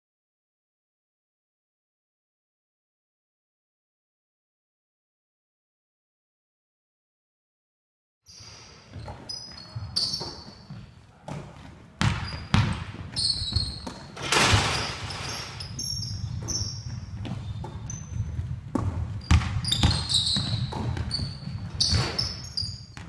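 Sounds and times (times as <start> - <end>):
shoes squeaking on wooden court: 8.3 - 23.0
basketball bouncing: 8.9 - 23.0.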